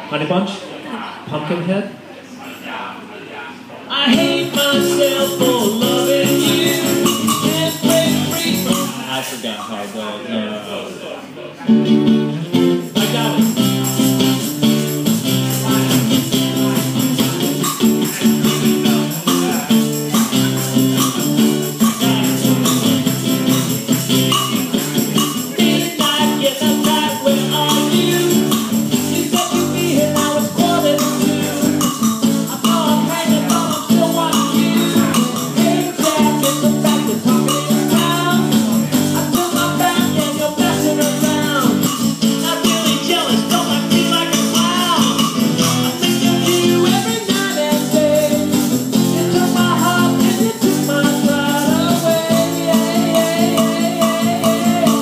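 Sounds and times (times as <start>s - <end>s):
man singing: 3.9s - 9.2s, 12.8s - 55.0s
acoustic guitar strumming: 3.9s - 9.5s, 11.6s - 55.0s
maracas shaking: 4.1s - 9.4s, 12.7s - 55.0s.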